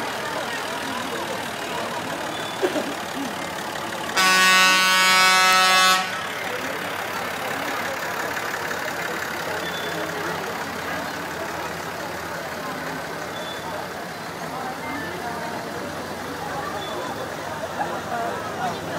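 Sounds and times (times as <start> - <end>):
vehicle engines running: 0.0 - 18.9
vehicle horn blast: 4.2 - 6.3.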